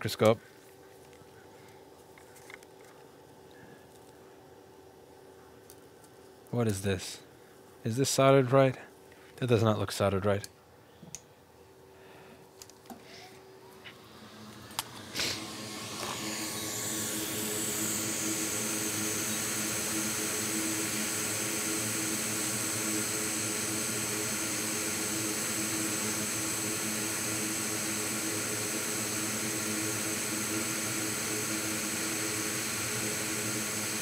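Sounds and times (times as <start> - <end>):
hot air station blowing: 12.9 - 34.0.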